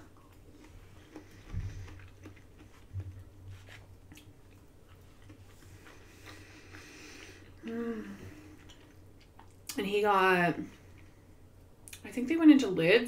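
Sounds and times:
person chewing food: 0.0 - 9.8
low steady hum: 0.0 - 13.0.

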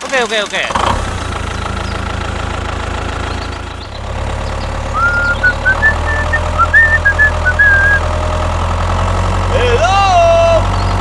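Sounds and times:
tractor engine idling: 0.0 - 11.0
short high chirps: 4.9 - 8.0.

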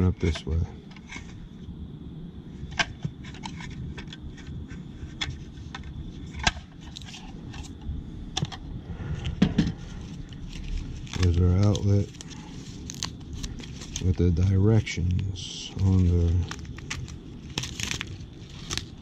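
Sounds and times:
plastic cover snapping: 11.0 - 14.1, 16.5 - 19.0.

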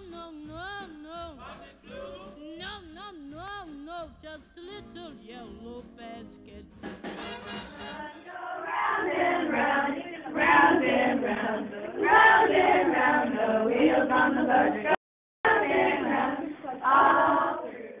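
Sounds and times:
group of adults singing: 0.9 - 3.0, 7.5 - 18.0.

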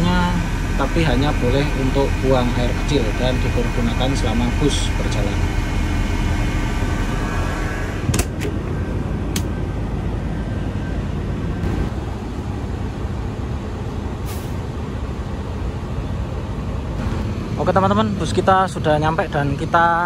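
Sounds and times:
bus engine idling: 0.0 - 20.0
sharp clicks: 9.3 - 9.5.

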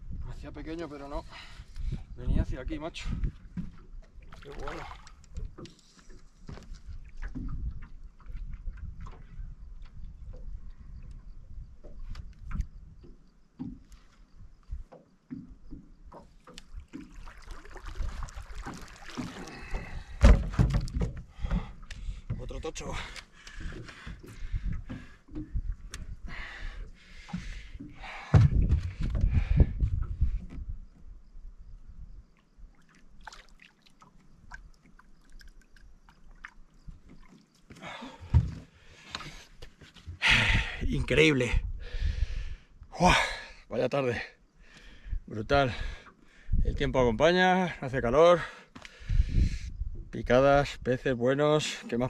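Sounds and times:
water splashing and sloshing: 3.0 - 30.6, 32.3 - 41.5.

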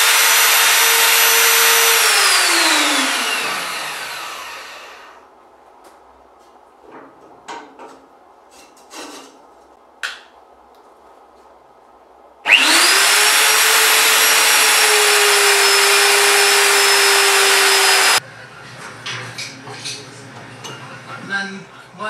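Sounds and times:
drill press motor whining: 0.0 - 5.2, 12.5 - 18.2.

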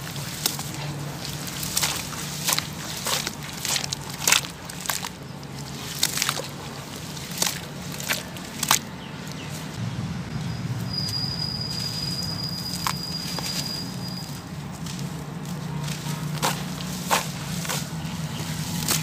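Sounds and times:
splashy slaps: 0.0 - 9.7, 15.7 - 19.0
hands squishing wet cement: 0.0 - 9.8, 11.8 - 19.0
low hum: 9.8 - 14.2.

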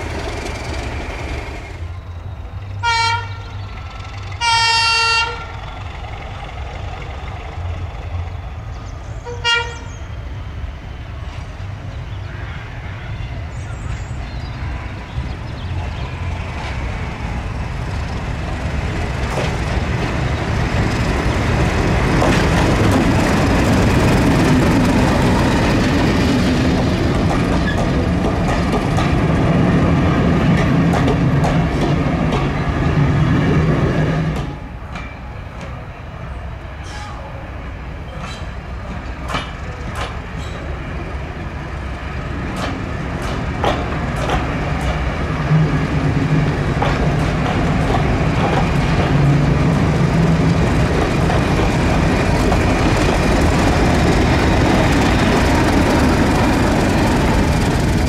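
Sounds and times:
train wheels clicking over rail joints: 0.0 - 1.8, 15.7 - 35.8, 38.1 - 40.8, 41.8 - 58.0
diesel locomotive engine rumble: 0.0 - 58.0.

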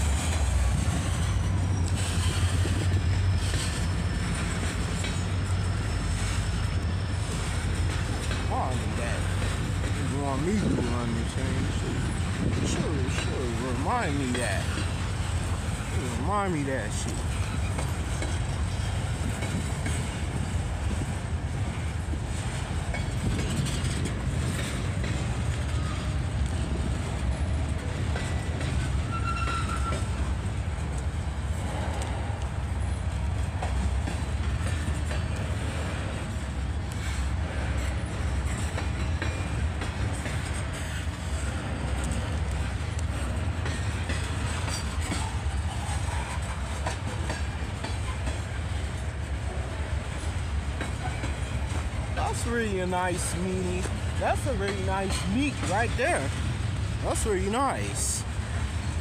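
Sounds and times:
freight train rumbling past: 0.0 - 59.0
wheels clicking over rail joints: 0.0 - 59.0
high wheel squeal: 29.0 - 30.2.

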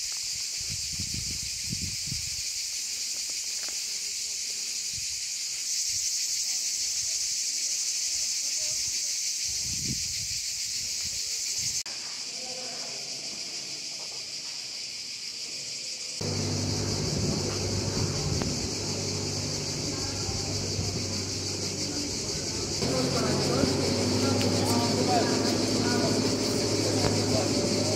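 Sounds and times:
cicadas singing: 0.0 - 27.9
low steady hum: 16.2 - 27.9.

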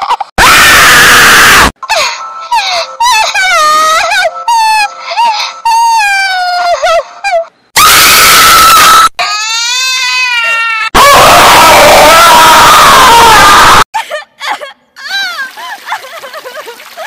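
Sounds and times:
cartoon crying: 0.0 - 7.5
harsh scream: 7.8 - 13.9.

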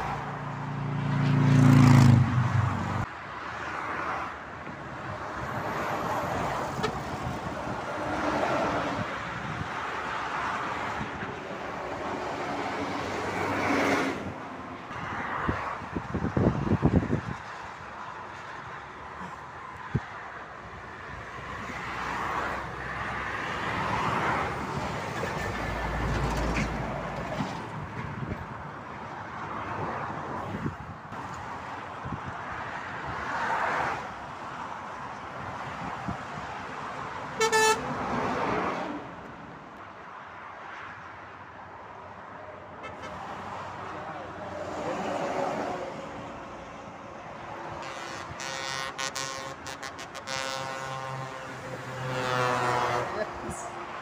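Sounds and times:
cars and lorries passing: 0.0 - 54.0
vehicle horn blast: 37.4 - 37.9, 47.8 - 51.5.

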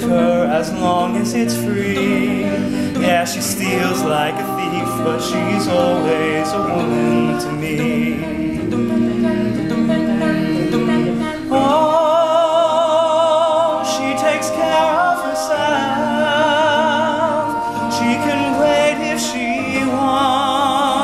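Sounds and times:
male choir singing chords: 0.0 - 21.0.

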